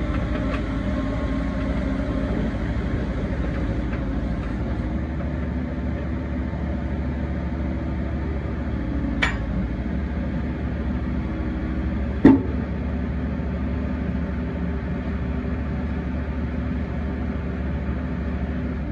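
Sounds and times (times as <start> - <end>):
excavator diesel engine running: 0.0 - 18.9
metal clank: 9.2 - 9.5.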